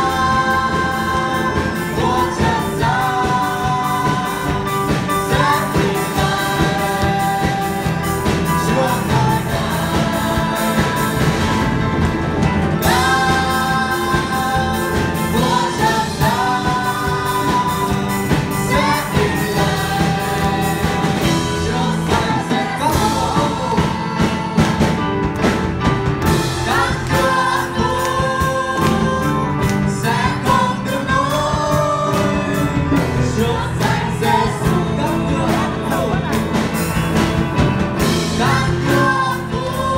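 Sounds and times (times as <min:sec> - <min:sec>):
woman and man singing hymn: 0:00.0 - 0:11.9, 0:12.8 - 0:25.0, 0:26.3 - 0:36.8, 0:38.0 - 0:39.9
drum kit beat: 0:00.0 - 0:39.9
electric guitar: 0:00.0 - 0:39.9
keyboard: 0:00.0 - 0:39.9.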